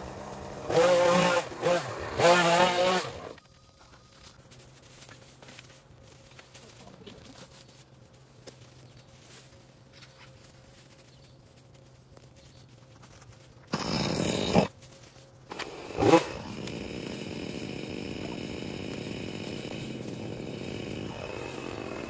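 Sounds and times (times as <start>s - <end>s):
small petrol engine running: 0.0s - 3.4s, 15.5s - 22.0s.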